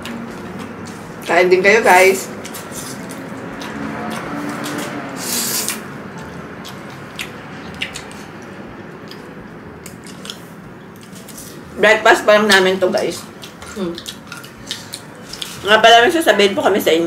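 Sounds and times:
noodles slurped and chewed: 0:02.4 - 0:05.8
wet mouth noises: 0:02.4 - 0:05.9, 0:06.6 - 0:10.5.

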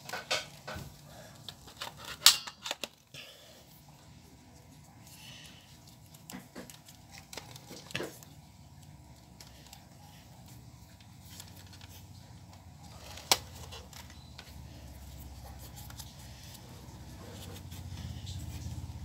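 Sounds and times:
plastic toy clicks and rubbing: 0:01.4 - 0:03.1.

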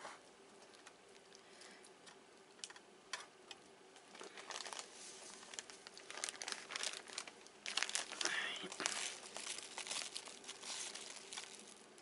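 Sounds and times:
sugar rustling under fingers: 0:04.1 - 0:12.0.

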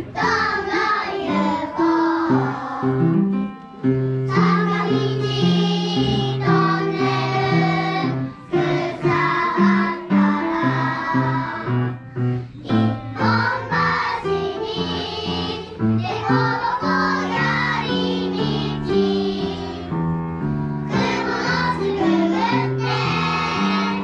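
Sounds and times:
children singing: 0:00.0 - 0:03.2, 0:04.3 - 0:11.8, 0:12.6 - 0:24.0
piano accompaniment: 0:00.0 - 0:24.0.

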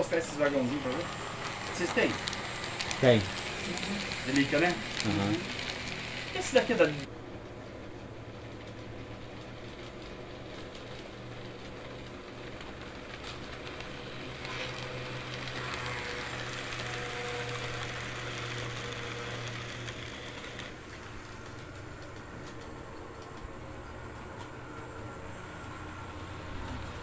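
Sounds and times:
small electric motor humming: 0:00.0 - 0:07.1, 0:13.2 - 0:27.0
wheels rattling on rails: 0:00.0 - 0:27.0.

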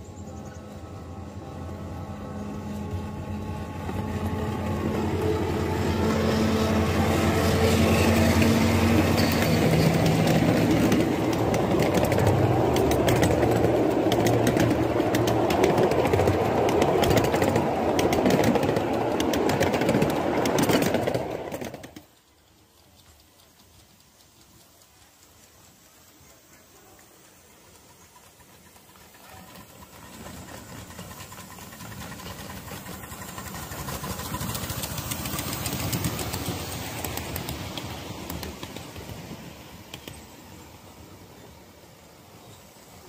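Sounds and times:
train wheels clicking on rails: 0:00.0 - 0:43.0
miniature train motor humming: 0:21.6 - 0:40.2.

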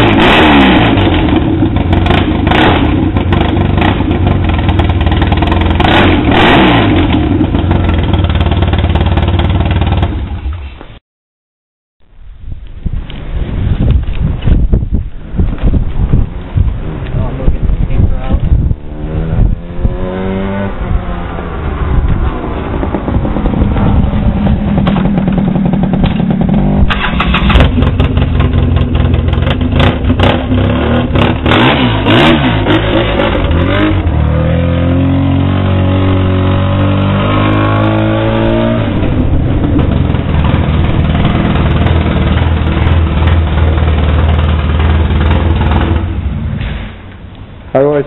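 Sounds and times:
atv engine revving: 0:00.0 - 0:10.4, 0:18.5 - 0:46.6
exhaust cracks: 0:13.0 - 0:48.0.

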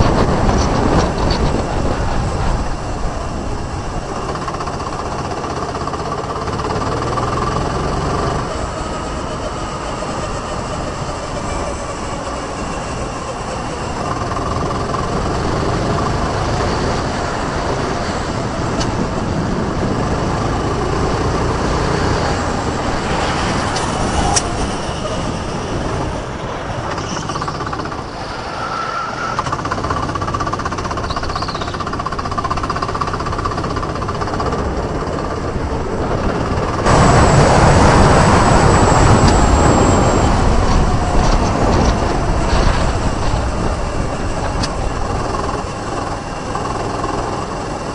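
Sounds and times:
wind rushing: 0:00.0 - 0:05.6, 0:14.5 - 0:30.4, 0:34.3 - 0:46.4
go-kart engine running: 0:00.0 - 0:47.9.

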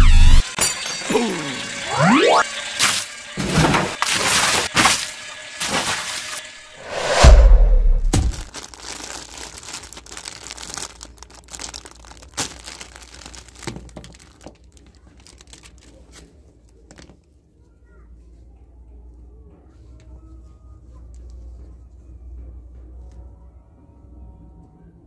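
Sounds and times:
falling whoosh sound effect: 0:06.8 - 0:08.5
plastic bag crinkling: 0:08.3 - 0:17.1
light clicks of plastic dolls: 0:13.6 - 0:17.4, 0:20.9 - 0:21.7.

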